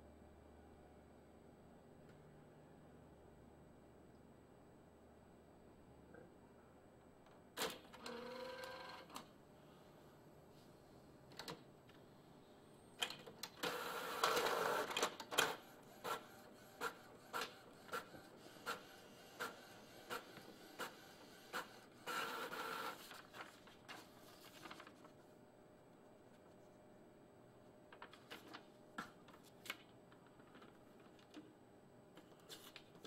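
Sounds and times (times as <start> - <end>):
printer whirring and clattering: 7.6 - 9.3, 11.3 - 12.1, 12.9 - 25.1.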